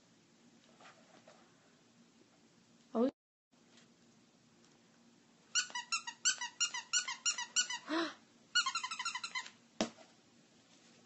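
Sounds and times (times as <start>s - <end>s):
squeaky dog toy squeaking: 5.5s - 7.9s, 8.6s - 9.6s.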